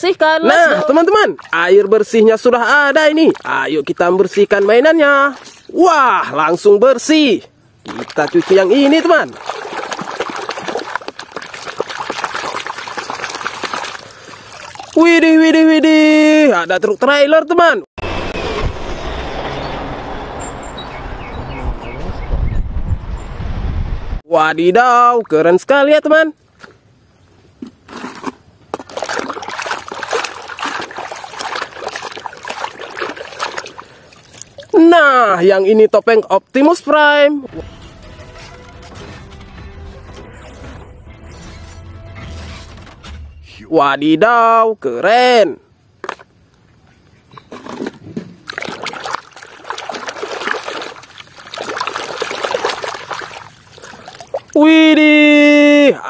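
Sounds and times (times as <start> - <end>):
water splashing in a plastic tub: 0.6 - 6.0, 7.8 - 17.0, 28.0 - 35.3, 47.5 - 55.8.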